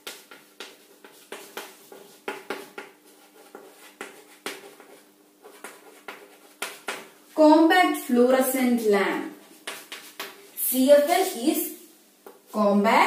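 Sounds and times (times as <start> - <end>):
chalk tapping on chalkboard: 0.0 - 7.2, 9.5 - 10.4.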